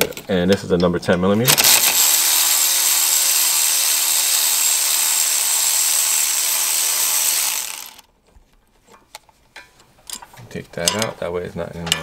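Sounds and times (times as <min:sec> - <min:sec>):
cordless ratchet running: 0:01.5 - 0:08.1.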